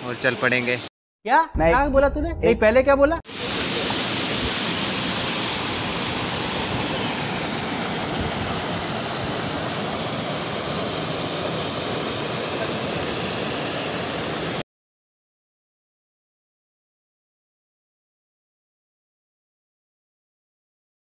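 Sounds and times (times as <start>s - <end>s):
river water rushing over boulders: 3.3s - 14.6s.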